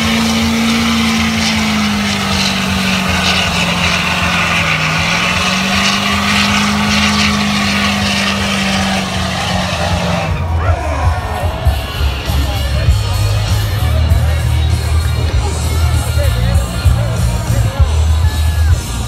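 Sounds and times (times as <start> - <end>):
tyres spinning on pavement: 0.0 - 18.2
pickup engine at high revs: 0.0 - 19.0.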